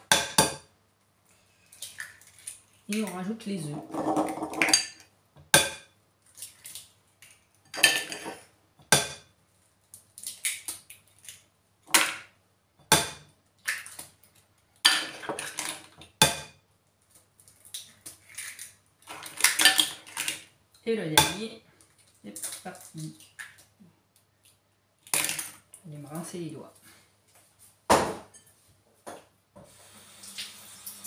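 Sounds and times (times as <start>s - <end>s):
eggshell clicks and crackle: 9.8s - 11.5s, 17.0s - 20.1s.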